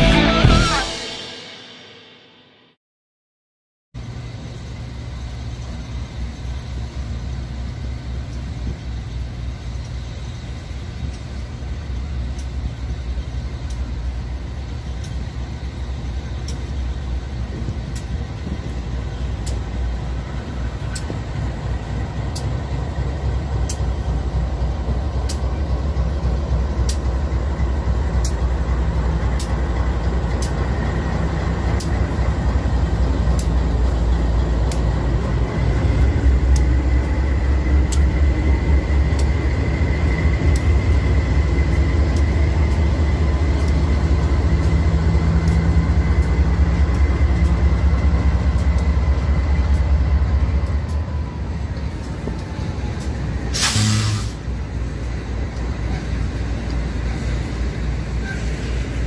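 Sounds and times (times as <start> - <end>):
locomotive diesel engines rumbling: 4.0 - 59.0
sharp high tick: 11.0 - 14.0, 14.9 - 15.4, 19.3 - 20.1, 20.8 - 22.7, 23.6 - 31.0, 31.6 - 32.2, 32.9 - 33.7, 34.4 - 56.0.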